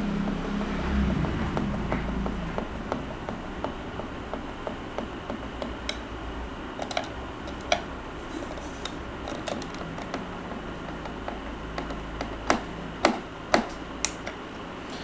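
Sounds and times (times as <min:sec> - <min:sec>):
low steady hum: 0:00.0 - 0:15.0
screwdriver clicking on plastic: 0:06.8 - 0:07.9, 0:08.8 - 0:14.4.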